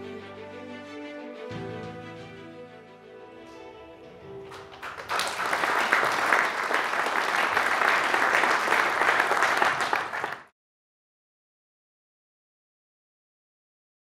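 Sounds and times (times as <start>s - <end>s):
audience applauding: 4.4s - 10.5s.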